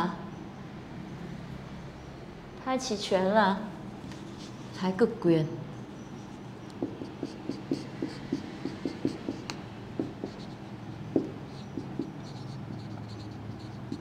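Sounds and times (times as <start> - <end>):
marker pen writing on whiteboard: 6.1 - 14.0.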